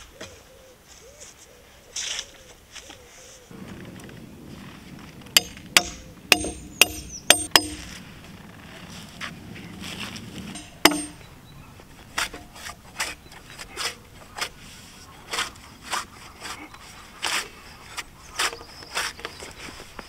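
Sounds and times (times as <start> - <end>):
metal tool knocking on wood: 5.4 - 7.9, 10.6 - 11.2.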